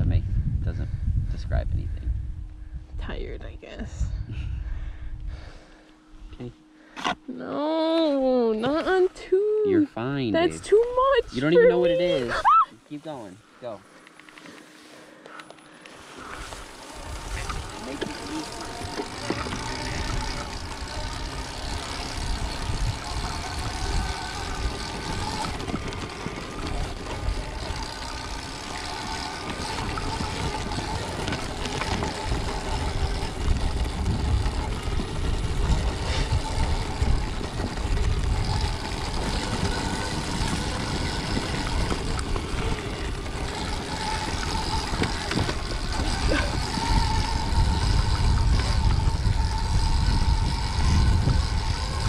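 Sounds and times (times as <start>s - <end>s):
wind on microphone: 0.0s - 5.5s, 17.0s - 52.0s
electric motor whine: 4.2s - 52.0s.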